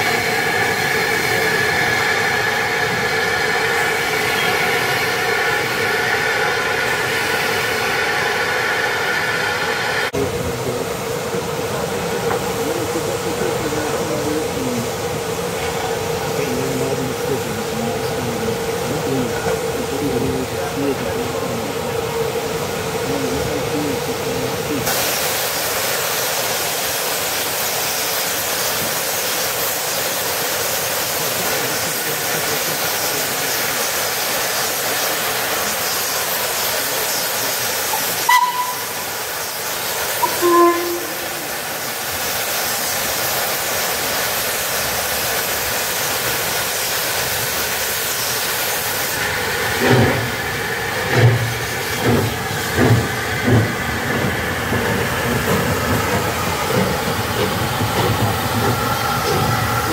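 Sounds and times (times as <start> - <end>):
steam hissing: 0.0 - 59.9
locomotive exhaust beat: 23.0 - 44.3, 48.9 - 59.9
locomotive whistle toots: 37.9 - 39.3, 40.2 - 41.6.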